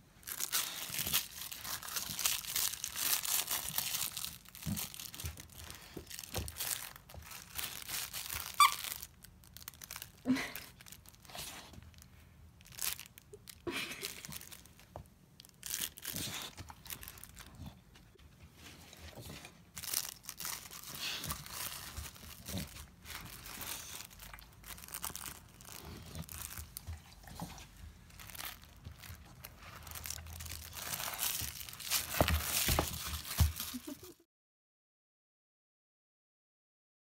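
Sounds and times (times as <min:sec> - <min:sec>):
fabric ripping and crinkling: 0:00.2 - 0:11.6, 0:15.6 - 0:17.5, 0:19.8 - 0:27.4, 0:28.1 - 0:34.2.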